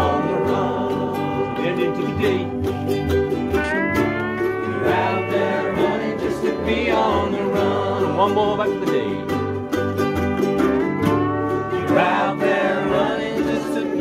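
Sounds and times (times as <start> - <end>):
pedal steel guitar sliding: 0.0 - 8.0
many voices singing: 0.0 - 9.4, 11.6 - 14.0
ukuleles and guitar strumming: 0.0 - 14.0.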